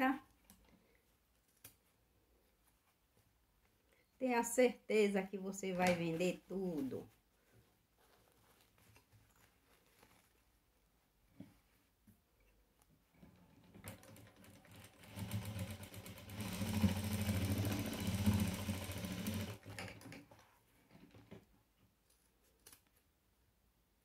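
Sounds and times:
sewing machine stitching: 0:13.2 - 0:21.4.

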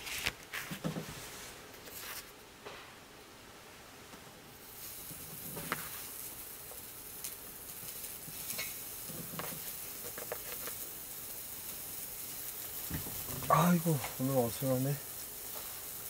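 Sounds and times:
food sizzling on grill: 0:04.5 - 0:16.0.

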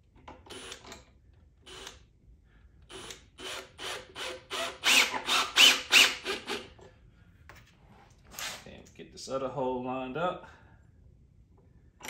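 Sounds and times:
drill boring into wood: 0:00.5 - 0:00.8, 0:01.7 - 0:02.0, 0:02.9 - 0:06.7.

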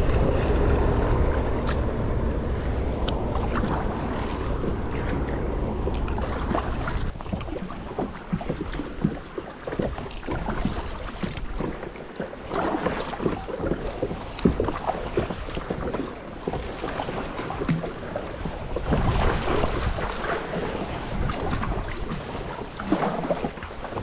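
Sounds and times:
water lapping around kayak hull: 0:00.0 - 0:24.0
wind rumbling on microphone: 0:00.0 - 0:24.0.

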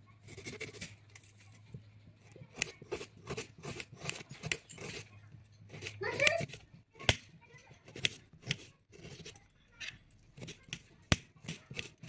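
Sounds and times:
knife slicing onion on board: 0:00.3 - 0:01.0, 0:02.4 - 0:09.4, 0:10.4 - 0:12.0.

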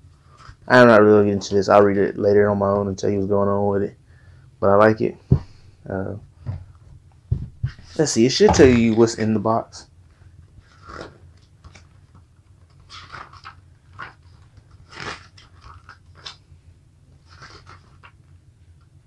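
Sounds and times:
paper pages rustling: 0:10.6 - 0:16.4, 0:17.2 - 0:18.3.

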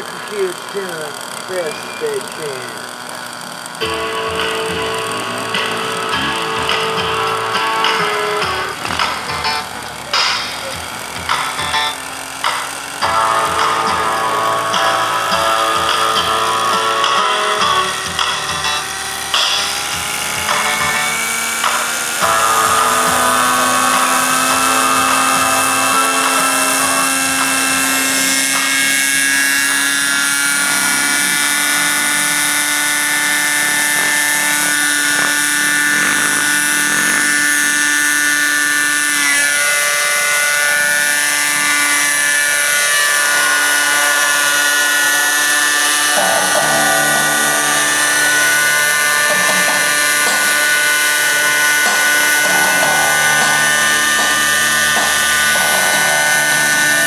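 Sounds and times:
model helicopter engine whine: 0:00.0 - 0:57.0.

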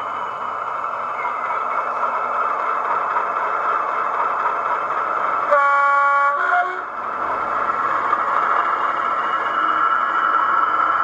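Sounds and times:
diesel engine idling through speaker: 0:00.7 - 0:02.4
two-tone train horn: 0:05.5 - 0:06.9.

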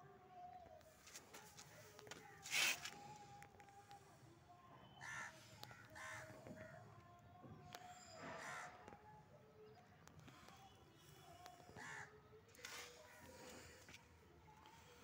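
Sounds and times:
crows cawing: 0:05.0 - 0:06.8, 0:11.8 - 0:12.2.

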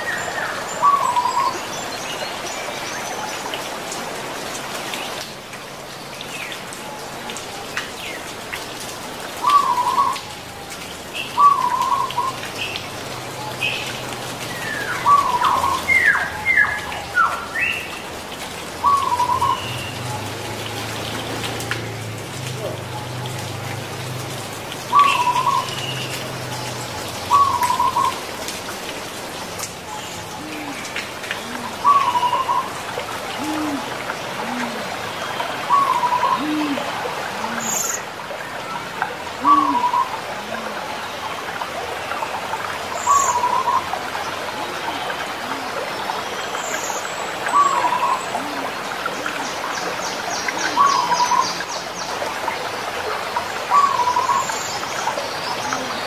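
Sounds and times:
doves cooing: 0:26.4 - 0:28.3, 0:30.2 - 0:38.0, 0:39.3 - 0:41.0, 0:44.6 - 0:46.1, 0:47.5 - 0:51.7, 0:55.5 - 0:56.0.

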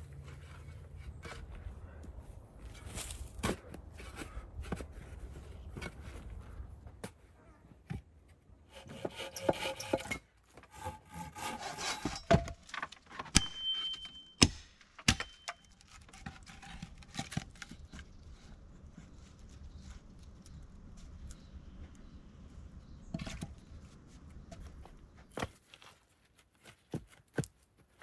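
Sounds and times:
logs scraping against wood and soil: 0:00.0 - 0:13.4, 0:14.8 - 0:22.0, 0:23.0 - 0:28.0.

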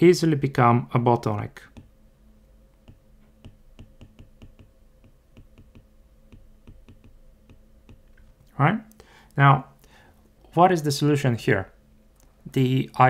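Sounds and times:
faint steady hum: 0:00.0 - 0:13.0
stylus tapping on tablet: 0:02.8 - 0:08.2.

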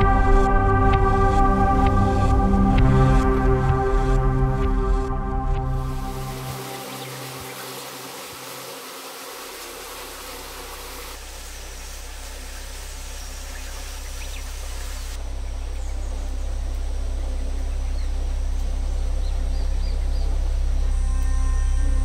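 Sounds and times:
ambient music drone: 0:00.0 - 0:22.0
outdoor background hiss: 0:05.8 - 0:21.8.

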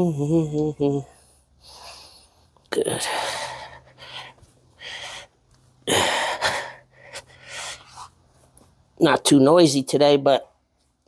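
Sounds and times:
person breathing heavily: 0:01.0 - 0:08.3.

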